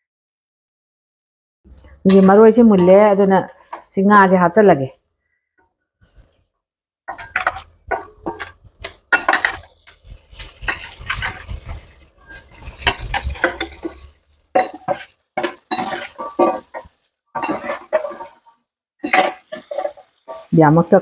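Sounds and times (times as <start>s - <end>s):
metal spoon scraping a steel bowl: 7.1s - 18.4s, 19.0s - 20.5s.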